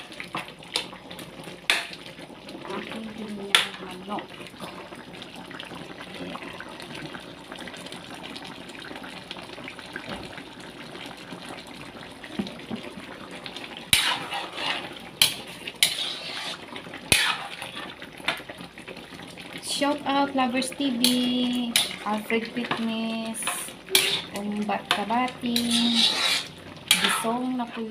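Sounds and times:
stew bubbling in a wok: 0:00.0 - 0:27.9
metal ladle scraping a wok: 0:13.9 - 0:18.0, 0:21.0 - 0:22.1, 0:23.4 - 0:27.4.

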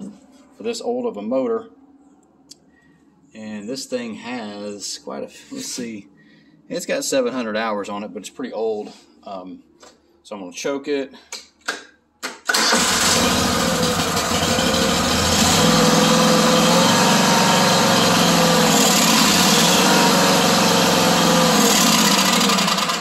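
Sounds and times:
mower engine starting and running: 0:12.5 - 0:23.0.

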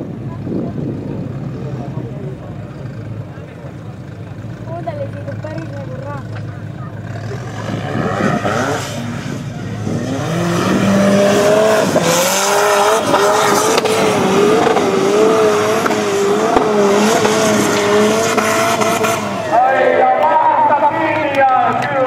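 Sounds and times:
buggy engine at high revs: 0:00.0 - 0:21.2.

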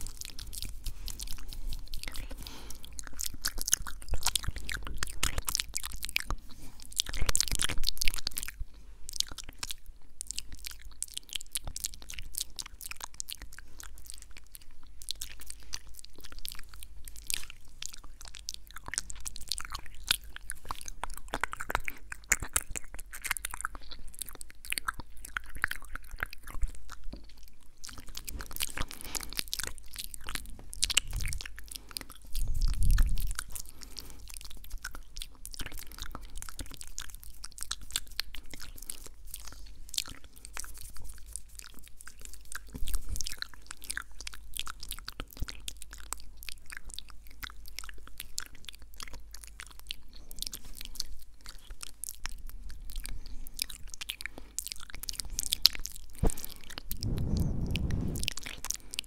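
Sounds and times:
wet mouth clicks and smacks: 0:00.0 - 0:59.0.

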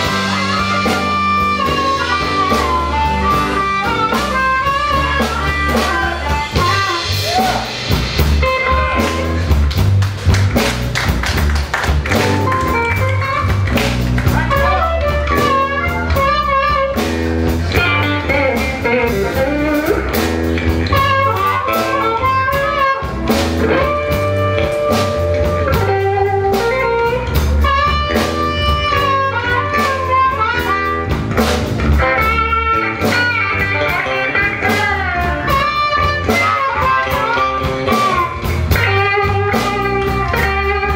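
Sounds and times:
harmonica: 0:00.0 - 0:07.2
bent lead guitar notes: 0:00.0 - 0:40.9
live blues band playing: 0:00.0 - 0:40.9.

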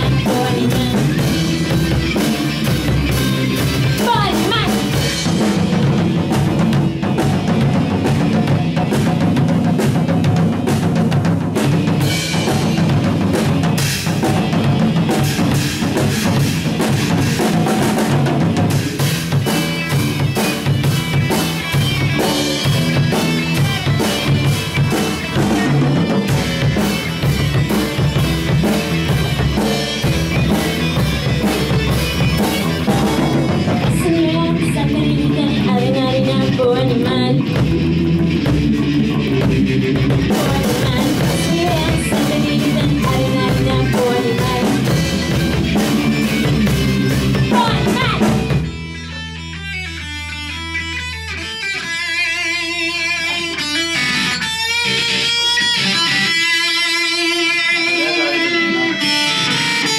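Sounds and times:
drum kit beat: 0:00.0 - 0:59.9
electric guitar playing: 0:00.0 - 0:59.9.

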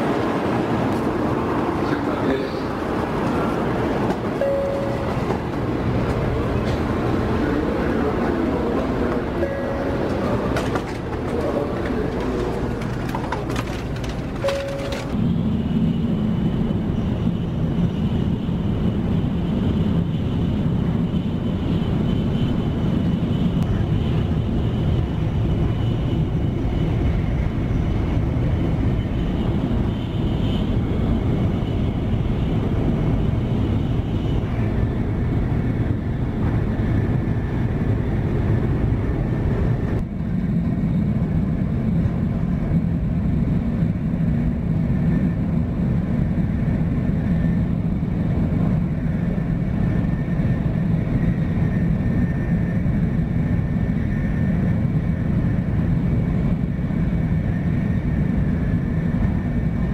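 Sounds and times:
train rumbling: 0:00.0 - 0:59.9
faint high whine: 0:04.4 - 0:06.6, 0:09.3 - 0:11.0.

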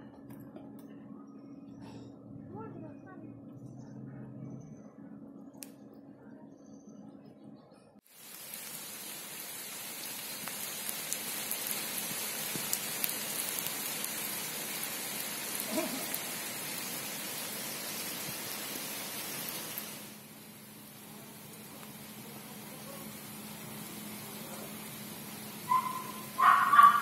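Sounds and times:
rain on pavement and puddles: 0:08.1 - 0:27.0.

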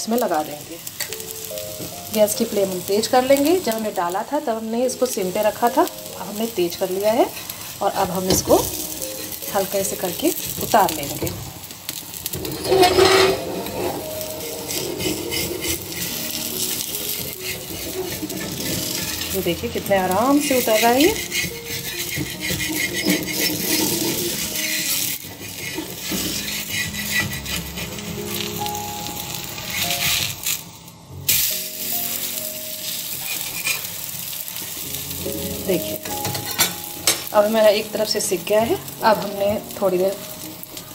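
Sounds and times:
batter sizzling in oil: 0:00.0 - 0:40.9
steel spatula scraping pan: 0:07.0 - 0:09.4, 0:12.3 - 0:28.7, 0:29.4 - 0:30.6, 0:32.8 - 0:34.0.

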